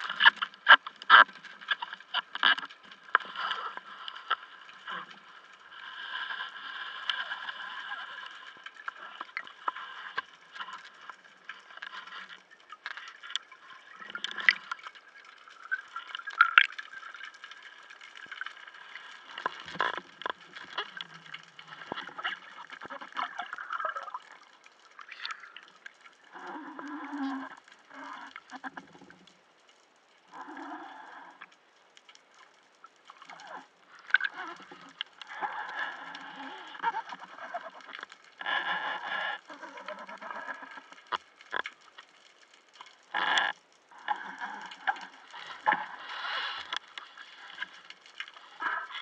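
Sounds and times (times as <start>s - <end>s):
underwater clicks and crackles: 0.0s - 49.0s
underwater gurgling: 0.0s - 49.0s.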